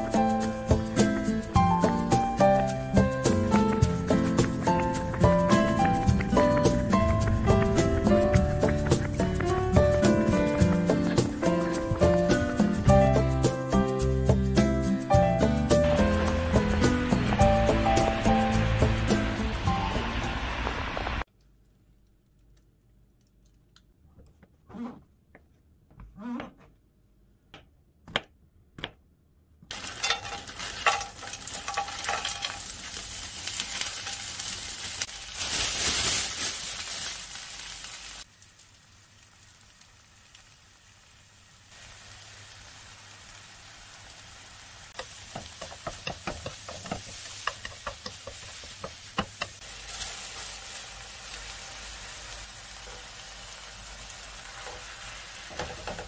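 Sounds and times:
onion and garlic sizzling in oil: 8.6s - 21.2s, 29.7s - 56.0s.

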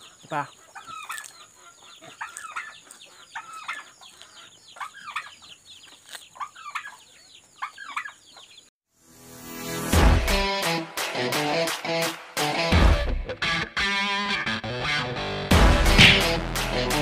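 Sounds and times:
chickens clucking: 0.0s - 8.7s
guitar music: 10.2s - 17.0s.

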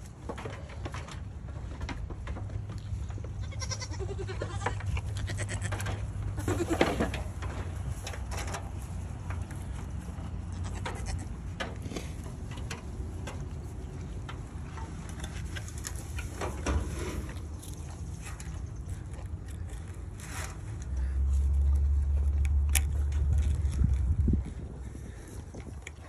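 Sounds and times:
clicks and rustles: 0.0s - 26.0s
goat bleating: 3.3s - 7.1s, 10.4s - 11.5s.

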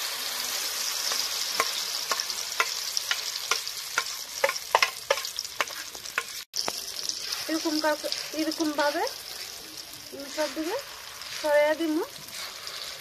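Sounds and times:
batter sizzling in hot oil: 0.0s - 13.0s.

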